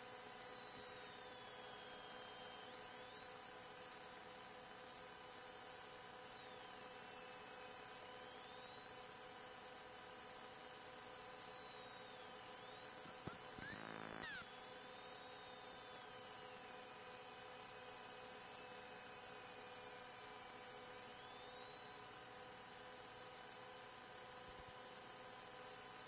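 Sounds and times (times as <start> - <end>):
thin high whine: 12.8 - 14.6.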